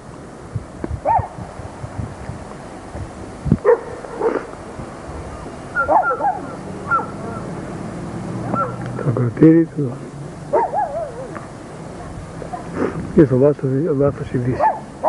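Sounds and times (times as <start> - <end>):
wind rumbling on microphone: 0.0 - 15.0
dog whining and yelping: 5.8 - 7.2, 8.6 - 8.8, 10.5 - 11.4.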